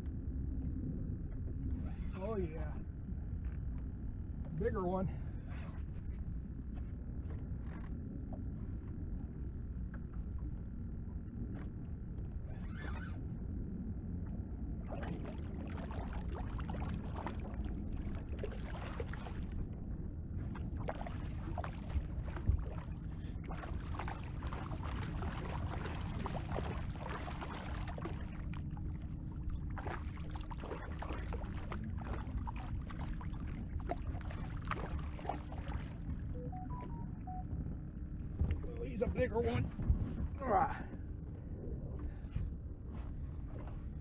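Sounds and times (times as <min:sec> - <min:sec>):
water lapping against boat hull: 0:00.5 - 0:13.4, 0:14.1 - 0:37.5, 0:38.2 - 0:44.0
wind on microphone: 0:05.2 - 0:44.0
fish thrashing and splashing: 0:14.9 - 0:19.6, 0:20.6 - 0:28.5.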